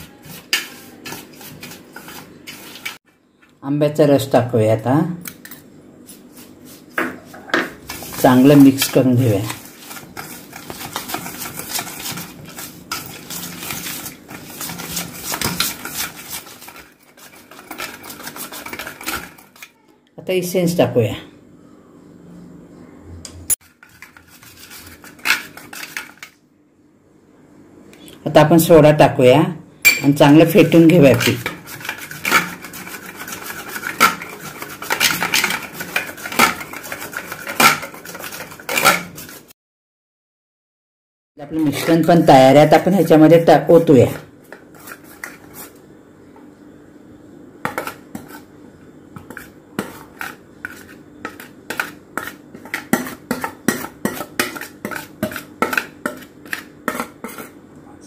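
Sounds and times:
whisk scraping metal bowl: 0.0 - 3.0, 7.9 - 19.7, 23.6 - 26.3, 30.3 - 39.5, 41.6 - 45.8, 47.7 - 48.5, 49.2 - 57.6.

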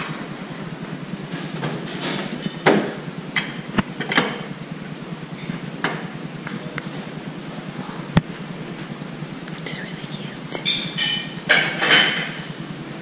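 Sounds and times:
china plates clinking: 10.7 - 12.1.

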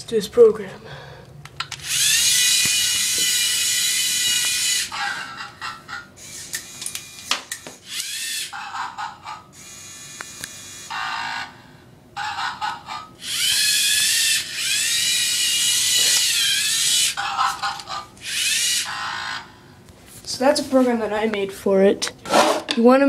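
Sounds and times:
servo motors whining: 1.8 - 5.4, 6.2 - 8.7, 9.6 - 11.2, 13.2 - 19.4.

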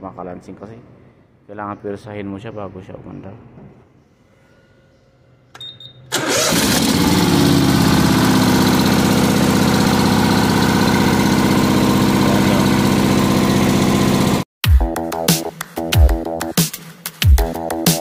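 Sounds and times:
mower engine running: 6.1 - 14.5.

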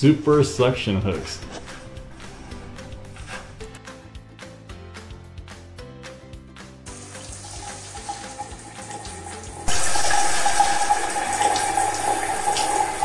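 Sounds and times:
background music with beat: 1.0 - 9.7
shower spraying water: 6.9 - 13.0.

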